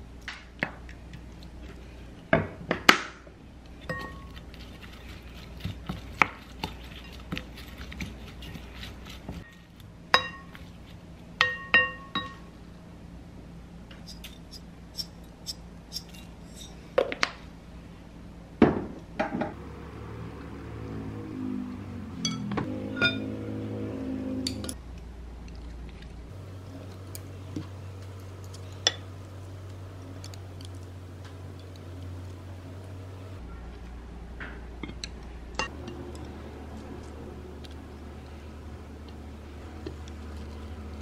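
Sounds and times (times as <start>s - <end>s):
wooden spoon clinking glass bowl: 3.8s - 4.4s, 10.2s - 10.6s, 11.4s - 12.4s.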